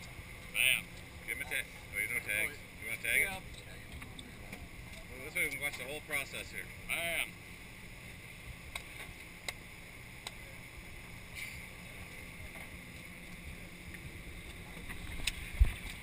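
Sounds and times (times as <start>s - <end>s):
boat engine humming: 0.0s - 16.0s
wind on microphone: 15.0s - 16.0s.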